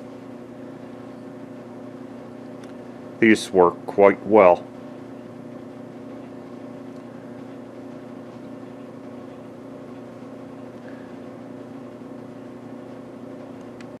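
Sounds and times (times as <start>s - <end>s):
mechanical hum: 0.0s - 14.0s.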